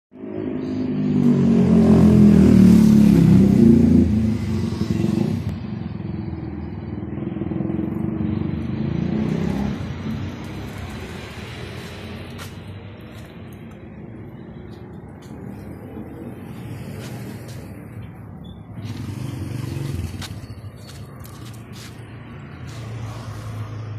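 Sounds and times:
vehicle engine revving: 0.7s - 12.5s, 18.7s - 23.9s.

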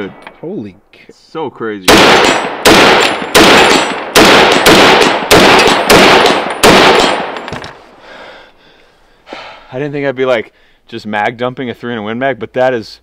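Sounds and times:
gunshot echo: 1.9s - 7.6s
rifle shots: 1.9s - 7.8s.

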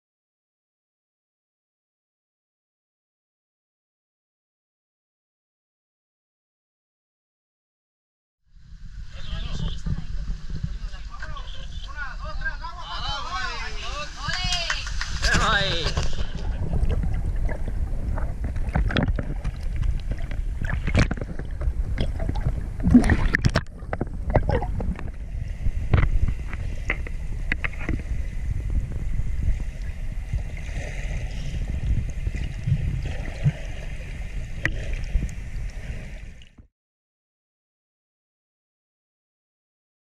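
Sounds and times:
muffled underwater rumble: 8.5s - 36.7s
clicks and bubble pops: 16.7s - 25.1s.

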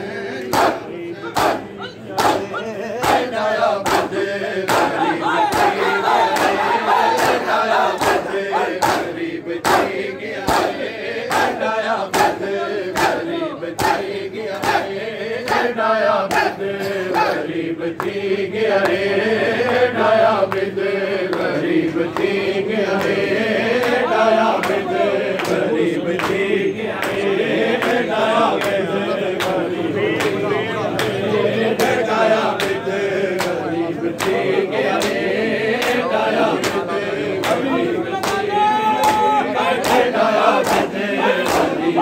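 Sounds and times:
men chanting in unison: 0.0s - 42.0s
chest-beating slaps: 0.4s - 6.6s, 7.2s - 14.9s, 35.8s - 41.8s.

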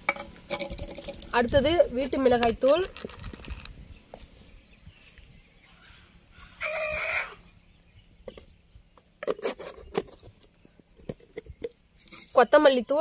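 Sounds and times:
chicken calling: 5.7s - 7.6s.

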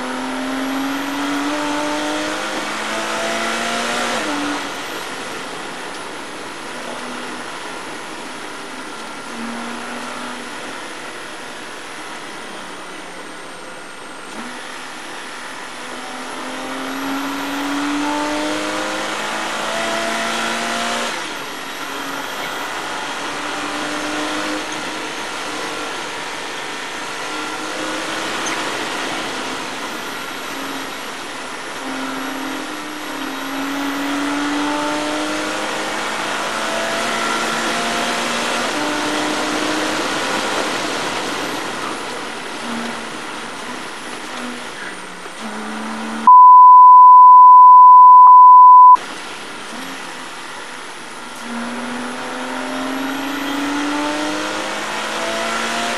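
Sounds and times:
race car engine at speed: 0.0s - 55.9s
loud steady beep tone: 46.2s - 49.0s.

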